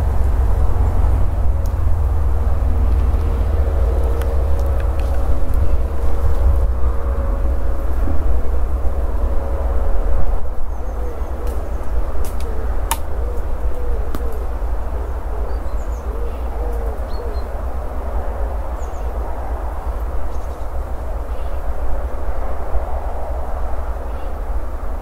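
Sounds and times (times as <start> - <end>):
steady low rumble: 0.0 - 25.0
pigeon cooing: 2.8 - 6.8, 10.7 - 17.8
small birds chirping: 10.7 - 17.6, 18.7 - 19.2.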